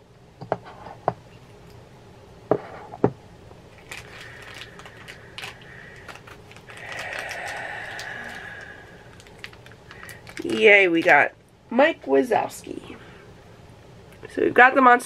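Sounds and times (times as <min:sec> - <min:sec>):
packaging rustle: 0:03.7 - 0:11.2
packaging clicking and crackling: 0:03.7 - 0:11.3.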